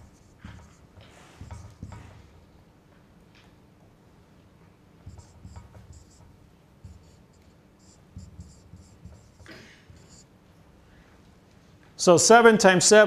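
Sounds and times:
marker squeaking on whiteboard: 0:00.0 - 0:02.4, 0:05.0 - 0:10.3.

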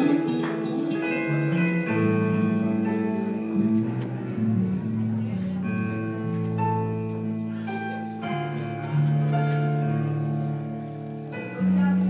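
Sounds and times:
electric guitar and bass chords: 0:00.0 - 0:07.5.

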